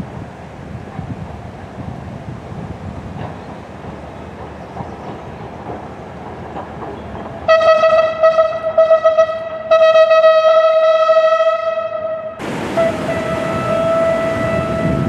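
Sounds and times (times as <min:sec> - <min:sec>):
diesel locomotive horn blasts: 0:07.4 - 0:15.0.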